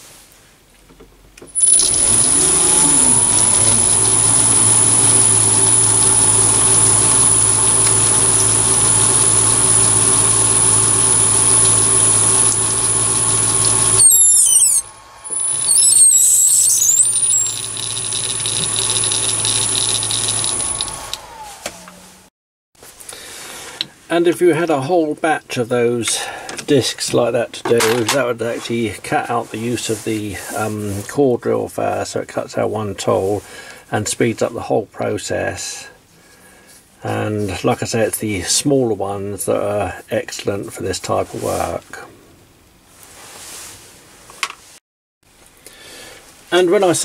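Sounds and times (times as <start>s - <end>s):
lathe motor whine: 1.5s - 22.2s
tap squealing in plastic: 14.0s - 17.7s.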